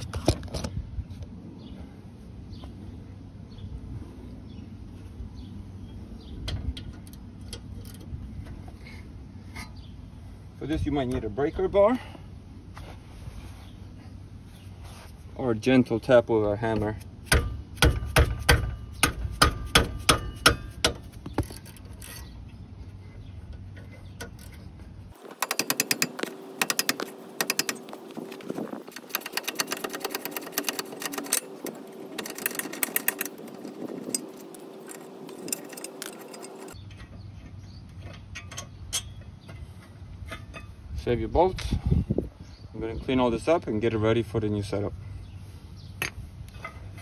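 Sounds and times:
ratchet clicking: 25.2 - 36.8.

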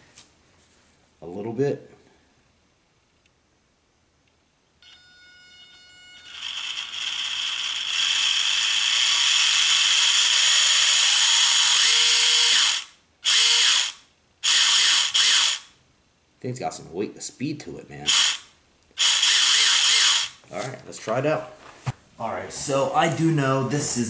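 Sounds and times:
toy car motor whining: 5.6 - 15.7, 18.1 - 20.4.

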